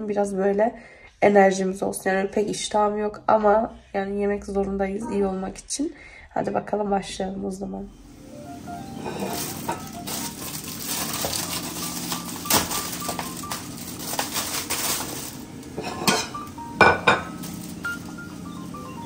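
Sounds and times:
dishes and cutlery clinking: 9.0 - 18.1.

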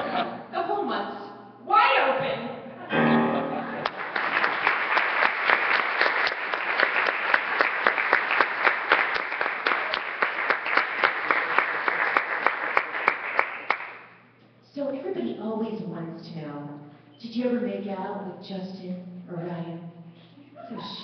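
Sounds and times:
audience applauding: 3.7 - 14.2.

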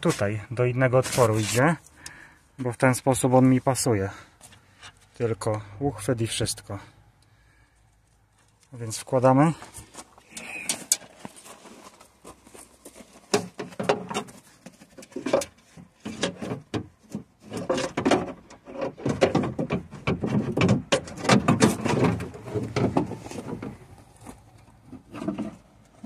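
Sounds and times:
metal and plastic clunking: 13.3 - 26.0.

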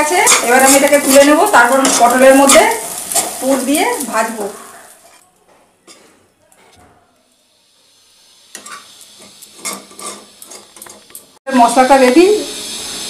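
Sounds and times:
spatula scraping and clinking pan: 0.0 - 3.4, 8.6 - 11.2.

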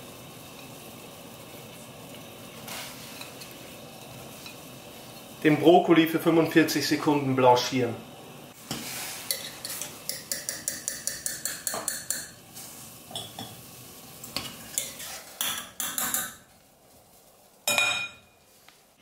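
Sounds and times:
wire strainer clinking on pot: 9.3 - 12.4.

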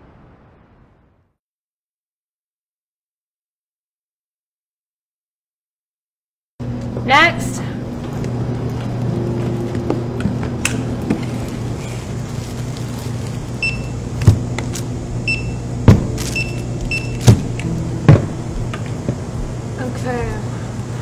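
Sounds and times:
low hum: 6.6 - 21.0
barcode scanner beeps: 13.6 - 14.0, 15.2 - 15.6, 16.2 - 17.5
goods knocking on counter: 15.9 - 16.2.

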